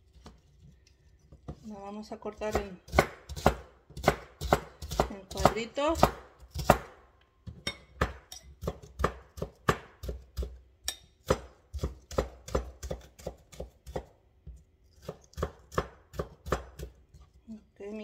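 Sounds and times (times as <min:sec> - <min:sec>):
knife chopping on cutting board: 0:02.4 - 0:07.0, 0:08.0 - 0:17.0.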